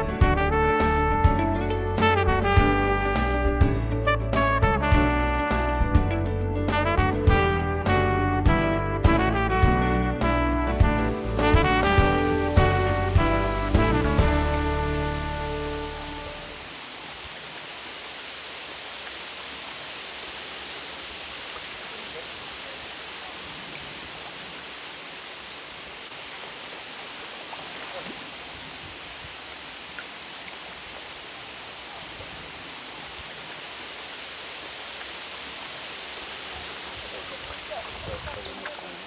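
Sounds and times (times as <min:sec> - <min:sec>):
brass-led music: 0:00.0 - 0:16.7.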